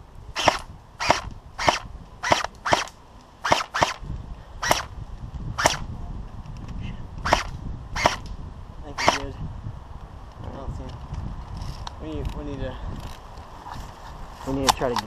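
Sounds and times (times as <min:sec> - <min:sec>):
airsoft rifle shots: 0:00.4 - 0:04.0, 0:04.6 - 0:04.9, 0:05.6 - 0:05.8, 0:07.2 - 0:08.2, 0:09.0 - 0:09.3.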